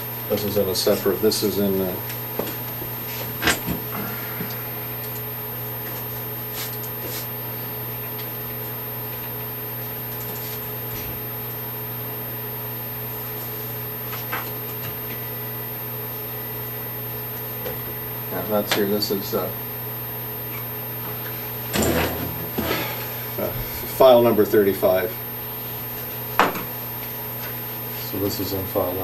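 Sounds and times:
fan hum: 0.0s - 29.0s.

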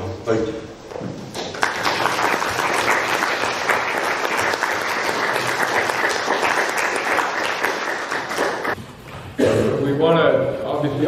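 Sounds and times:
audience applauding: 1.4s - 8.8s.

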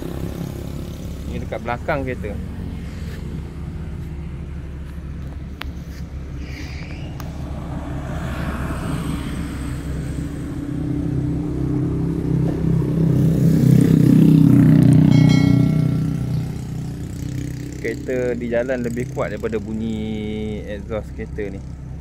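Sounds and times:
car idling quietly: 0.0s - 7.5s
passing vehicle: 0.0s - 22.0s.

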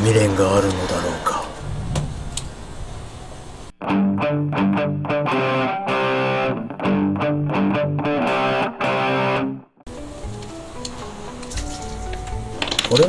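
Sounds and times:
distorted electric guitar chords: 3.8s - 12.5s.

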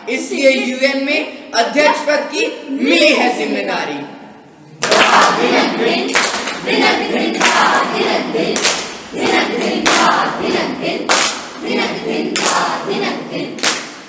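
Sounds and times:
young voices chanting in unison: 4.8s - 13.9s
group clapping: 4.8s - 14.0s.

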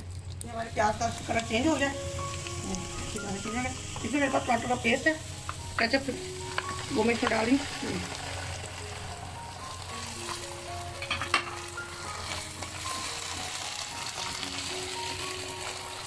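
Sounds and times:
onions sizzling in hot oil: 0.0s - 16.0s
spatula stirring: 6.5s - 16.0s.

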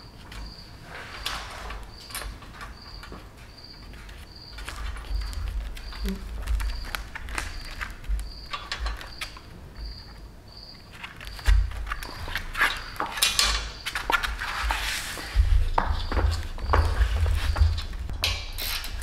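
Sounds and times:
bolts and nuts clinking: 8.5s - 9.4s, 12.7s - 13.9s.

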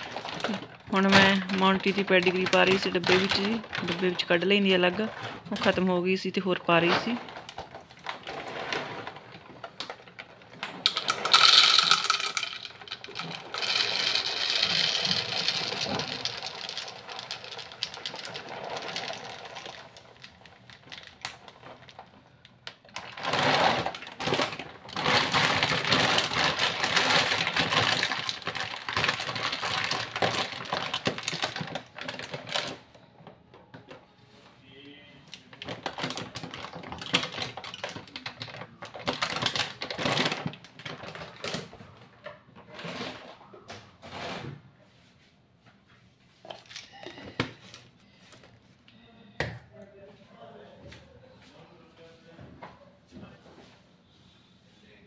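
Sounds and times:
dry kibble pouring into glass jar: 10.9s - 19.8s.

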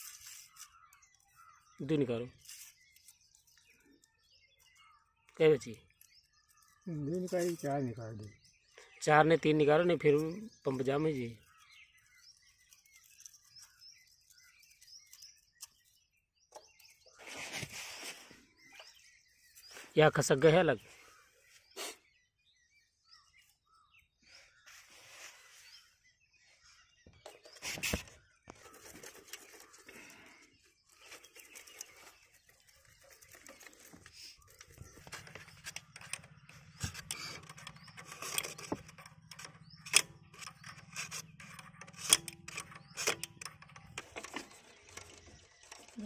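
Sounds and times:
metallic tool clicks and scrapes: 33.5s - 46.0s.

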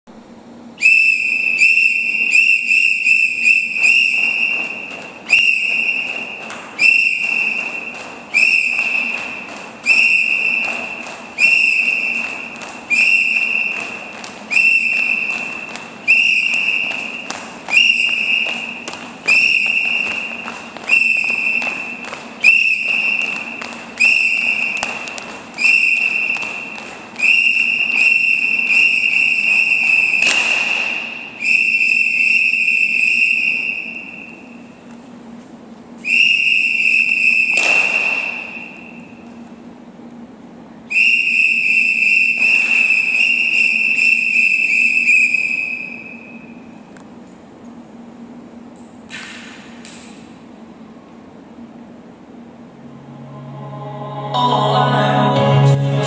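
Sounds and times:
high whistle blasts: 0.8s - 34.7s, 36.0s - 39.3s, 40.9s - 46.7s.

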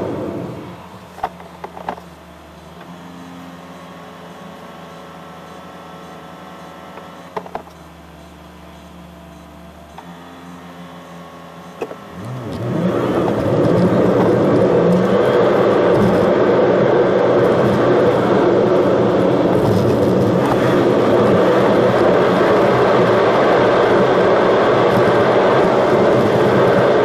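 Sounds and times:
car accelerating: 0.0s - 2.0s, 8.2s - 27.0s
car engine idling: 0.0s - 27.0s
road noise: 0.0s - 27.0s.

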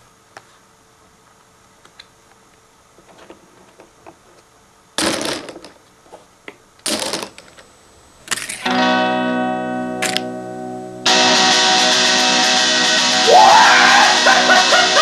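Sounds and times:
poker chips clattering: 6.9s - 7.6s.

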